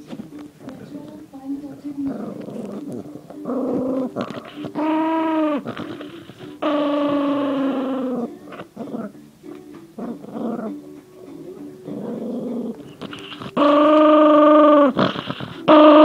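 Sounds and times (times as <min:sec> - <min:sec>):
small dog growling: 0:02.0 - 0:09.2, 0:10.0 - 0:10.8, 0:11.8 - 0:16.0.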